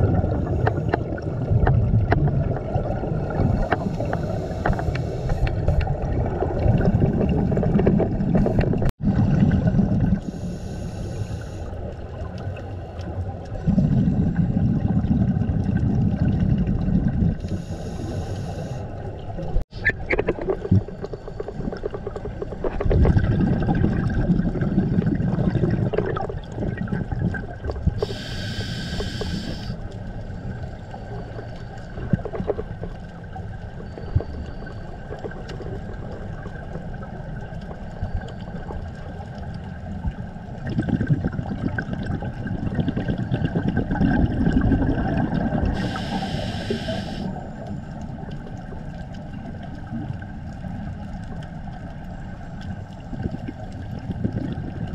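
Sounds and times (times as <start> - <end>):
exhaled bubbles rumbling: 0.0 - 10.5, 11.6 - 54.9
regulator air hiss: 10.3 - 11.7, 17.5 - 18.9, 28.0 - 29.8, 45.8 - 47.4
steady hum: 28.0 - 29.8.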